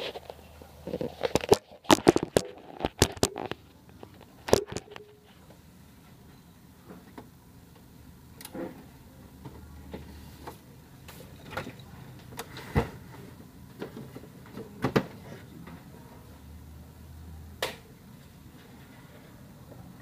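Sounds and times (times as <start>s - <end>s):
plastic parts clicking and knocking: 0.9s - 5.1s.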